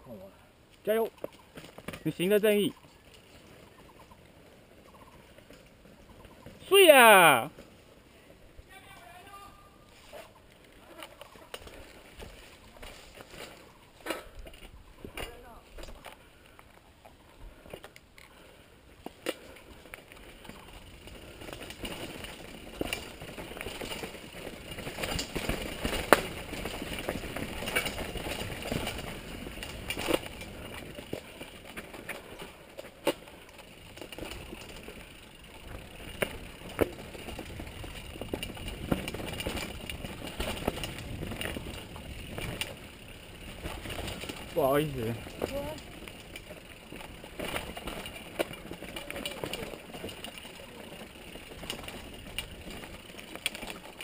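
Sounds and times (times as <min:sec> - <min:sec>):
bike rattling and knocking: 0:19.0 - 0:54.0
tyres crunching over dirt: 0:19.0 - 0:54.0.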